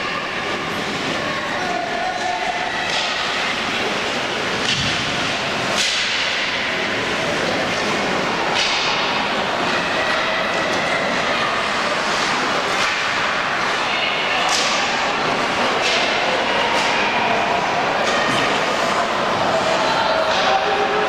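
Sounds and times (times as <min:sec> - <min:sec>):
hockey sticks and puck clacking: 0:02.2 - 0:17.4, 0:19.6 - 0:21.0.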